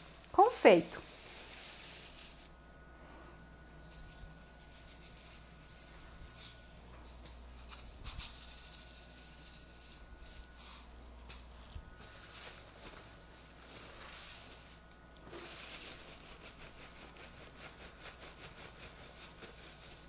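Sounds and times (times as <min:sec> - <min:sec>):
plastic film crinkling: 0:00.0 - 0:02.5, 0:12.0 - 0:16.6
sugar sprinkles rattling: 0:00.0 - 0:02.5, 0:03.8 - 0:11.4, 0:12.0 - 0:20.0.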